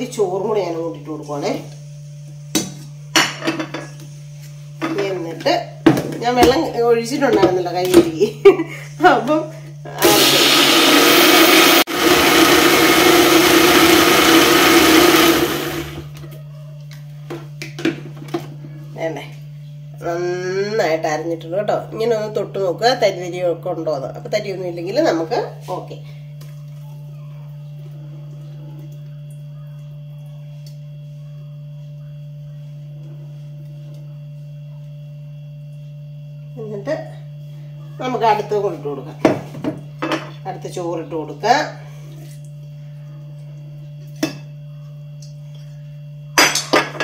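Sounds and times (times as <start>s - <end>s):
low electrical hum: 0.0s - 10.0s, 16.0s - 47.0s
mixer grinder motor: 9.8s - 16.3s.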